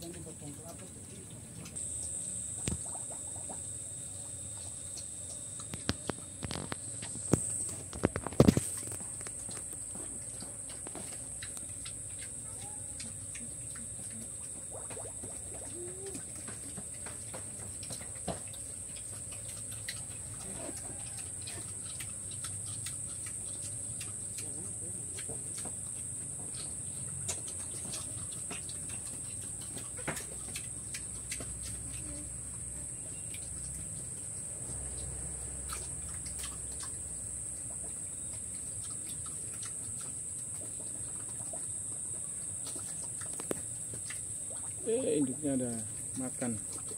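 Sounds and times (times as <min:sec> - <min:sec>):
high-pitched insect drone: 0:01.8 - 0:19.1.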